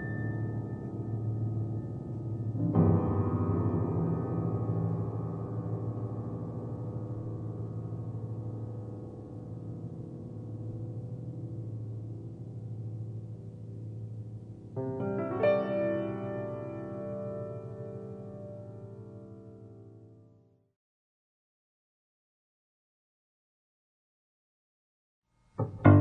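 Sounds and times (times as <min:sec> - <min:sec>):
solo piano music: 0:00.0 - 0:20.4, 0:25.6 - 0:26.0.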